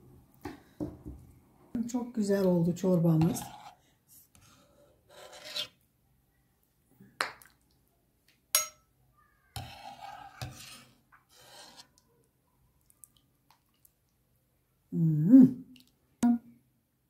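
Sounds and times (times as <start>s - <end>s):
ladle scooping and pouring soup: 3.2s - 3.8s, 9.5s - 14.2s.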